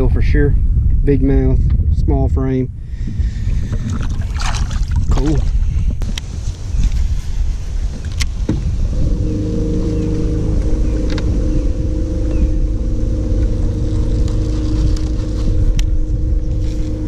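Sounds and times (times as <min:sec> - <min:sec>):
electric trolling motor hum: 0:08.8 - 0:17.0.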